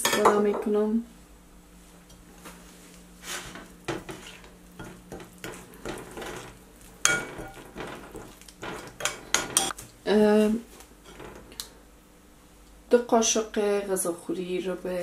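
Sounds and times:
metal spoon stirring in ceramic bowl: 3.4s - 9.8s.

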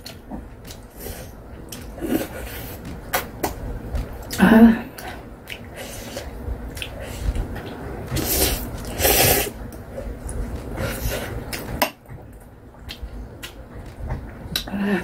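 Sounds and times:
person slurping noodles: 8.2s - 9.6s.

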